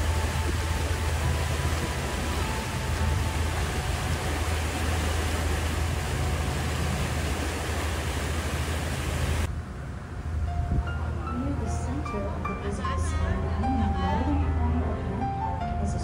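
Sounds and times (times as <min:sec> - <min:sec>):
wind and water rushing: 0:00.0 - 0:13.3.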